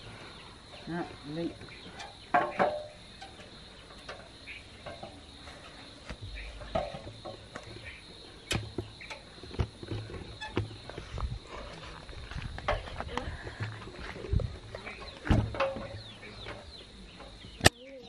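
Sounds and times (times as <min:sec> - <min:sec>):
cricket chirps: 0:00.0 - 0:18.0
crickets droning: 0:00.0 - 0:18.0
metal ladder knocking and clanking: 0:01.9 - 0:05.2, 0:06.3 - 0:07.8, 0:14.8 - 0:16.7.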